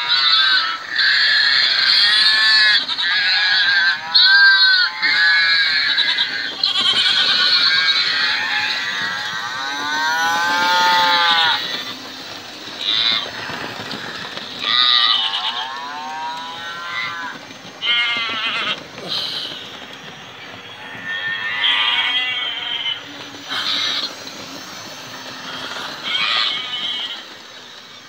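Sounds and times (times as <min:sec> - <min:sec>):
sheep and goats bleating: 0:00.0 - 0:12.0, 0:12.8 - 0:13.4, 0:14.6 - 0:18.8, 0:21.0 - 0:24.2, 0:25.5 - 0:27.2
cattle mooing: 0:08.7 - 0:11.7.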